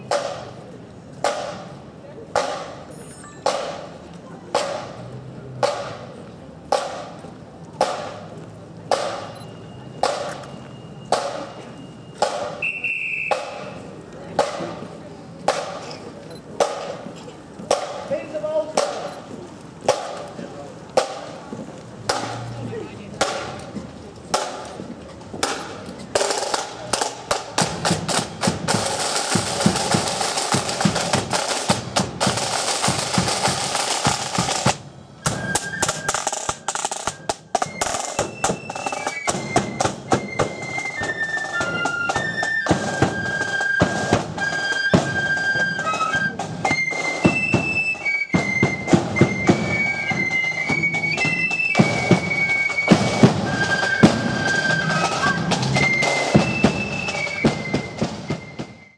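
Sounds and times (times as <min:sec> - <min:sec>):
snare drums: 0:00.0 - 0:05.0, 0:05.6 - 0:07.2, 0:07.8 - 0:08.3, 0:08.9 - 0:09.4, 0:10.0 - 0:10.5, 0:11.1 - 0:11.6, 0:12.2 - 0:15.9, 0:16.6 - 0:19.2, 0:19.9 - 0:20.3, 0:21.0 - 0:24.8, 0:25.4 - 0:58.9
flutes playing a tune: 0:09.6 - 0:14.0, 0:27.8 - 0:58.9.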